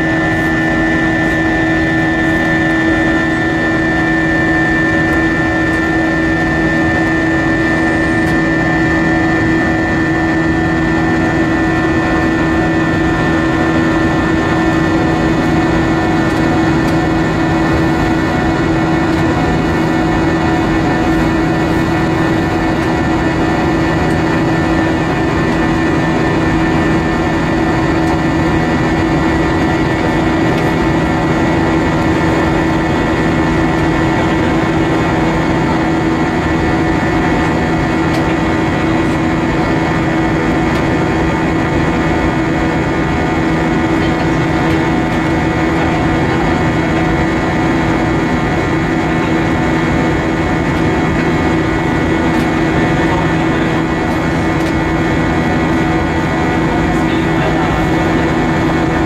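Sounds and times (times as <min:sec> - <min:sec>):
airplane cabin engine rush: 0:00.0 - 0:59.0
steady engine hums: 0:00.0 - 0:59.0.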